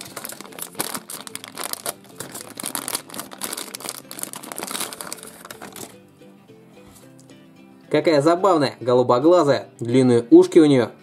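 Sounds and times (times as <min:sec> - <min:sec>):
plastic bag crinkling: 0:00.0 - 0:06.0.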